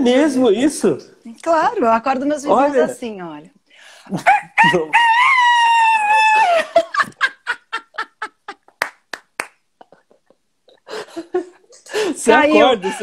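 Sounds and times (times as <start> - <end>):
laughter: 6.1 - 8.8, 9.8 - 13.0
hand claps: 8.7 - 10.0.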